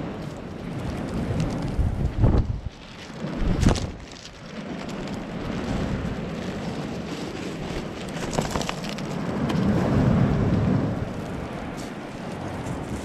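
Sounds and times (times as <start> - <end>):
sea surf rushing onto shore: 9.1 - 13.0.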